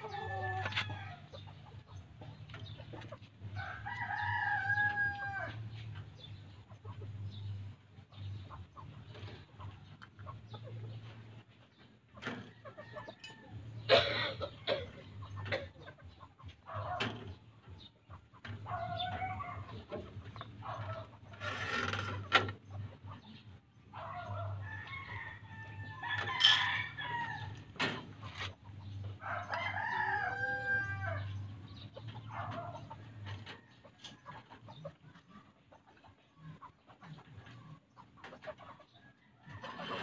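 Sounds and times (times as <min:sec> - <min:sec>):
roosters crowing: 0:00.0 - 0:01.6, 0:03.4 - 0:06.0, 0:12.2 - 0:17.4, 0:18.4 - 0:22.5, 0:23.9 - 0:34.4, 0:38.9 - 0:40.0
chickens clucking: 0:00.0 - 0:40.0.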